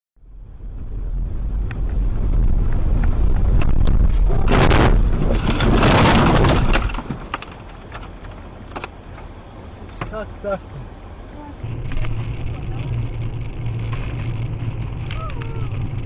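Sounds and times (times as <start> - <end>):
vehicle road noise rumble: 0.2 - 16.0
loud rush of noise: 11.6 - 16.0.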